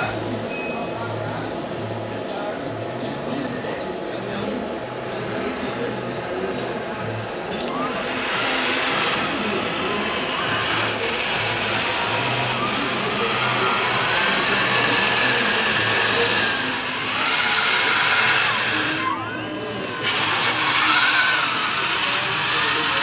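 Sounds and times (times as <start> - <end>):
electric motors whining: 0.0 - 23.0
steady motor hum: 0.0 - 23.0.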